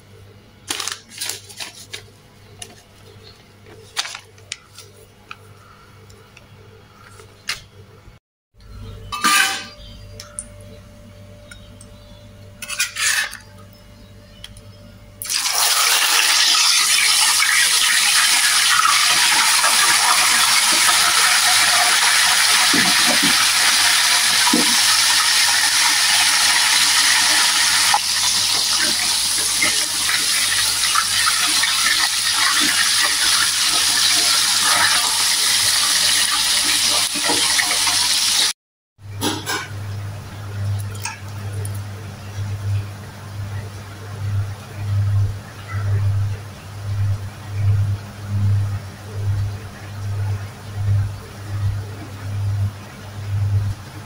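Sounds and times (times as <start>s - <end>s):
fish frying in oil: 15.2s - 38.5s
oil sizzling: 15.2s - 38.5s.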